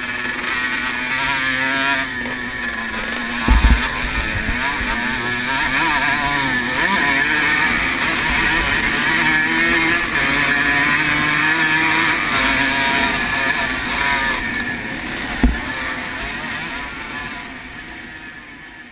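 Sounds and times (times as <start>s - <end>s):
motorcycle engine revving hard: 0.0s - 18.9s
sharp thump: 3.4s - 5.0s, 15.4s - 16.0s.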